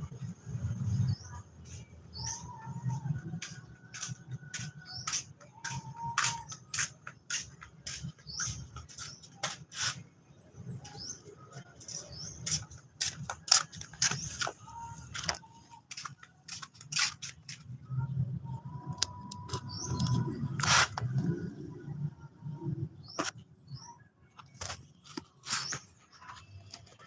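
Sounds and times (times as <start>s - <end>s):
birds chirping: 0.2s - 27.0s
flip-flops slapping on concrete: 3.4s - 10.0s, 11.9s - 17.8s.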